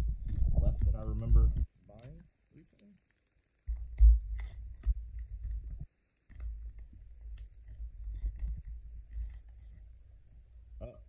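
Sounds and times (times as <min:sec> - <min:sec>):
low rumble: 0:00.0 - 0:01.7.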